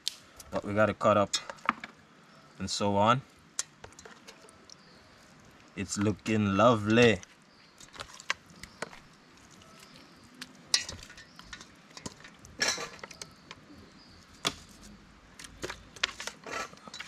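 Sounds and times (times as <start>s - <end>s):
knife clinking on steel bowl: 10.7s - 13.2s
scraping rustle: 14.5s - 17.0s.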